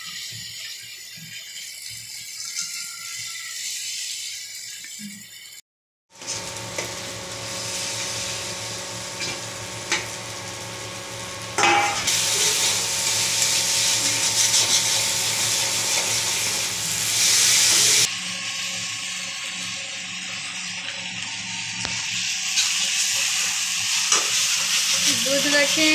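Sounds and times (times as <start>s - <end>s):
vegetables sizzling in hot oil: 0.0s - 25.9s.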